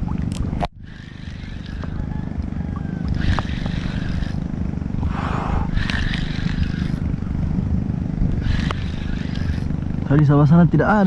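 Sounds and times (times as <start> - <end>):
wind buffeting microphone: 0.0 - 11.0
short hissing swishes: 3.1 - 4.4, 5.0 - 7.2, 8.4 - 9.8.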